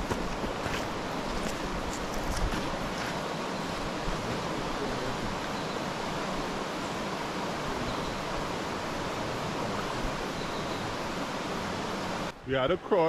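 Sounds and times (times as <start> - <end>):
river rushing over stones: 0.0 - 12.3.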